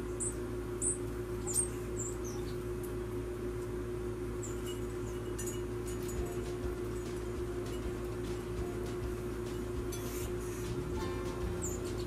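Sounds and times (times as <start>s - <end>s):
songbirds chirping: 0.0s - 3.3s, 6.2s - 12.0s
steady low hum: 0.0s - 12.0s.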